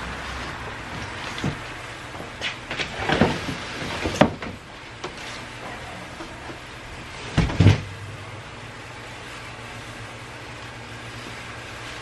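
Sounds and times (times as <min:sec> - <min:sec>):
cardboard scraping and knocking: 0:01.0 - 0:05.4.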